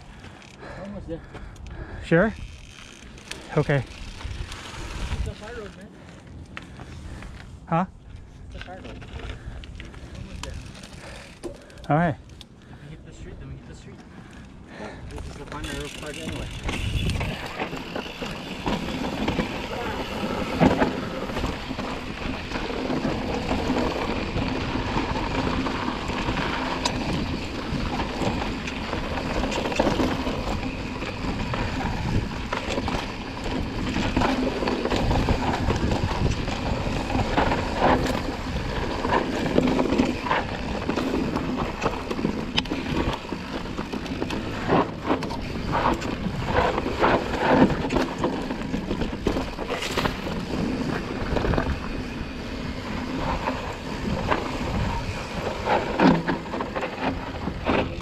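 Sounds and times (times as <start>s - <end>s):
bike rattling and knocking: 0.1s - 7.4s, 13.5s - 58.0s
tyres rolling over gravel: 13.5s - 58.0s
wind on microphone: 16.3s - 17.9s, 18.8s - 41.9s, 48.9s - 56.1s.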